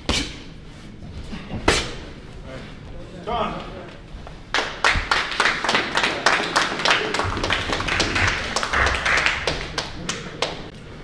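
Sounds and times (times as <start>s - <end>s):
spectators clapping: 4.5s - 10.7s.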